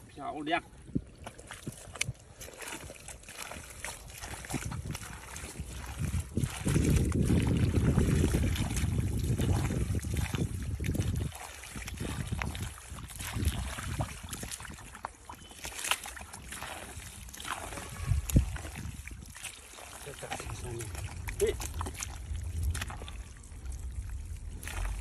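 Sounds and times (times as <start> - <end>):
hands squelching through mud: 1.2 - 25.0
wet slaps and splashes: 1.2 - 25.0
heavy low rumble: 20.5 - 25.0.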